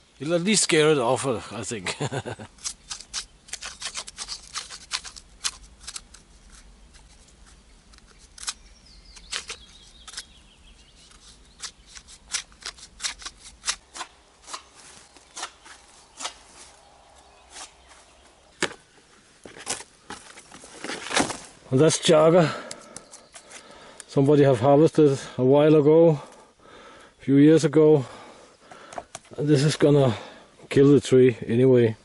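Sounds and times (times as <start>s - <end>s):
bark cracking and peeling: 2.5s - 17.8s.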